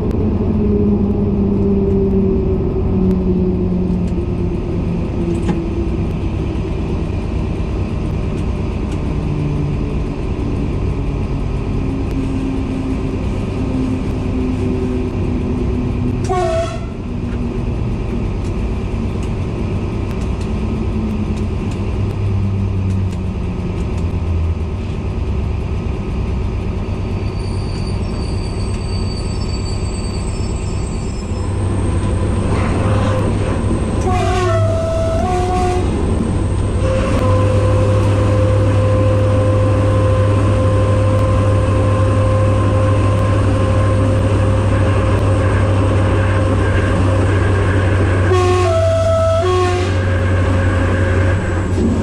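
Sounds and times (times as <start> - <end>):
locomotive diesel engine running: 0.0 - 52.0
train horn blast: 16.2 - 17.0, 34.0 - 36.0, 36.8 - 44.5, 48.1 - 50.4.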